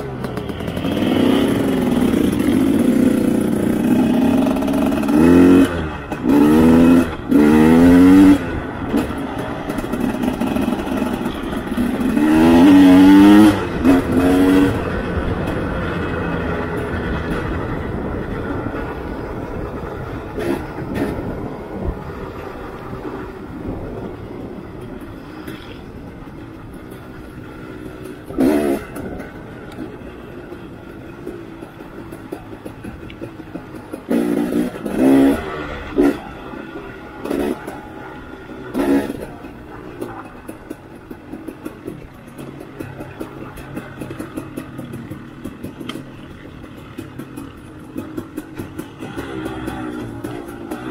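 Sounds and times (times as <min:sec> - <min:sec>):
dirt bike engine revving: 0:00.0 - 0:22.4, 0:28.1 - 0:29.4, 0:34.0 - 0:40.8, 0:44.0 - 0:50.9.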